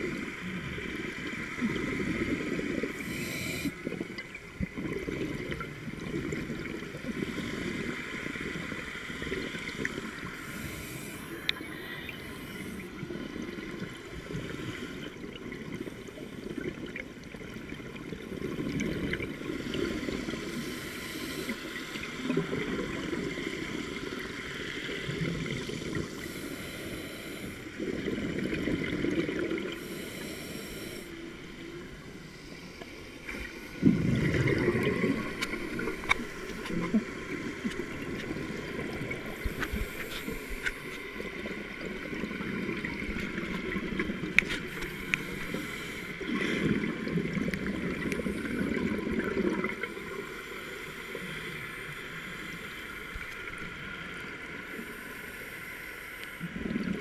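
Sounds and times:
gurgling exhaled bubbles: 0.0s - 10.7s, 11.3s - 20.4s, 27.8s - 29.8s, 33.4s - 45.6s, 46.2s - 50.0s, 56.5s - 57.0s
steady underwater hiss: 0.0s - 57.0s.

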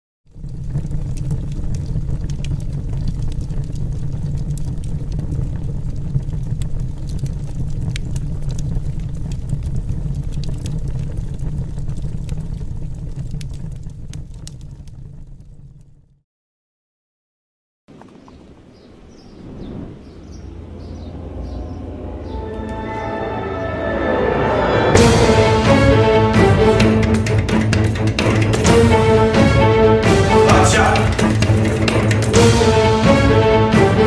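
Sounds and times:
crackling clicks: 0.3s - 16.0s, 31.1s - 32.4s
deep rumble: 0.3s - 16.2s, 18.9s - 23.7s.

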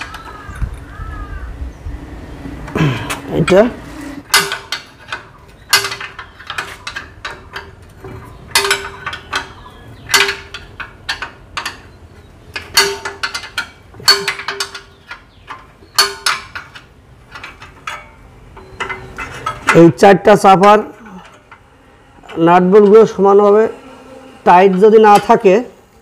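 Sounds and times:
spanner clinking on metal: 3.0s - 23.2s.

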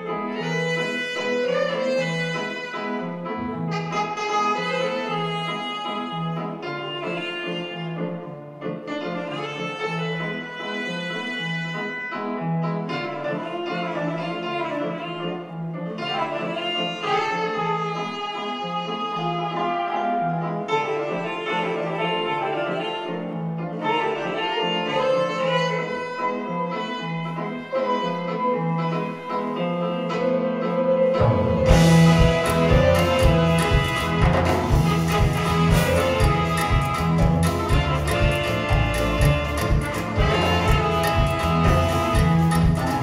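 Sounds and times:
jazz-funk band playing: 0.0s - 43.0s
drums: 31.0s - 43.0s.

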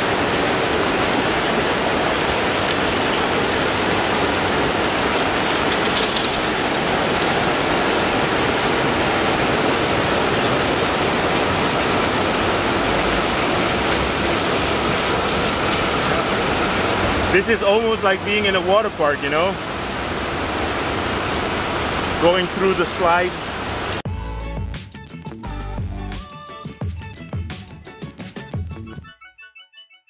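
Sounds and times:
heavy rain hiss: 0.0s - 24.0s.

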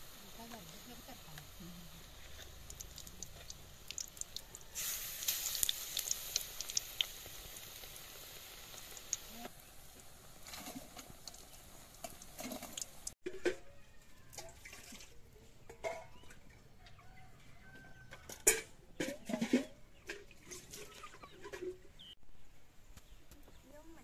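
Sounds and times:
food sizzling in hot oil: 0.0s - 13.2s.

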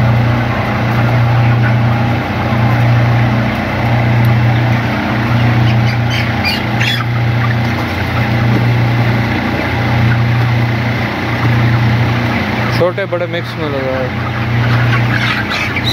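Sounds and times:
chickens calling: 0.0s - 15.9s
low machine drone: 0.0s - 15.9s.

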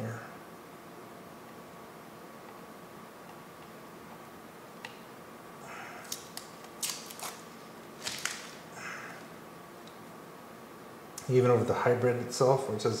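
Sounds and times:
plastic film crinkling: 6.0s - 8.7s.

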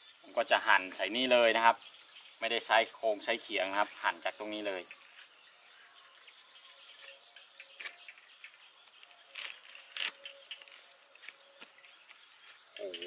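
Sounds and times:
insects chirping: 0.0s - 13.0s
knife cutting plant stalks: 9.3s - 11.7s.

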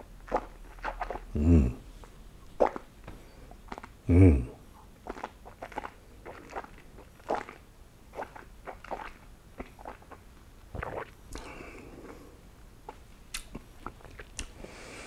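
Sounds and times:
wet mouth smacks and clicks: 12.9s - 14.6s.

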